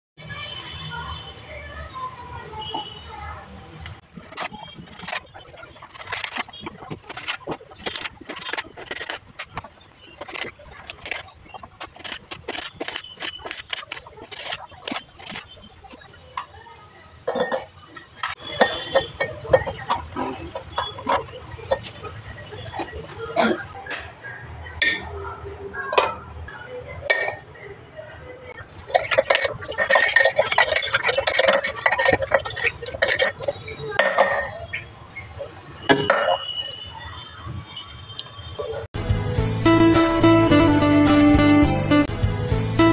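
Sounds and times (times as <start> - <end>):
fruit rattling in a glass jar: 4.0 - 16.0, 28.7 - 34.6.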